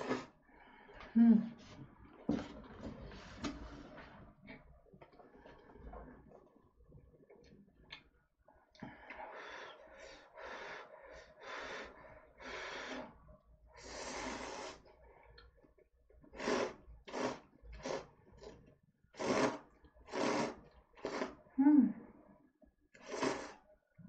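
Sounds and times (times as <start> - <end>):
noodles being slurped: 0.0 - 0.4, 13.8 - 15.1, 16.2 - 21.5, 23.0 - 23.7.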